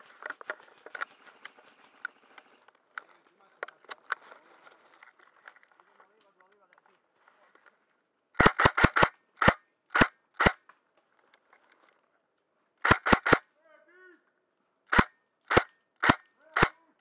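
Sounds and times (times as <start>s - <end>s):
airsoft rifle shots: 8.4s - 10.6s, 12.8s - 13.4s, 14.9s - 16.8s.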